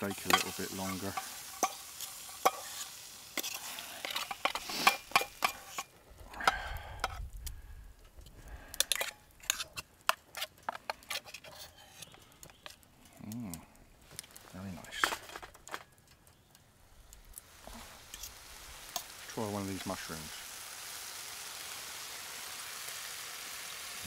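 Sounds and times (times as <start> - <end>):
food sizzling in a frying pan: 0.0 - 5.9, 17.3 - 24.0
utensil scraping a pan: 0.0 - 5.9, 8.8 - 12.7.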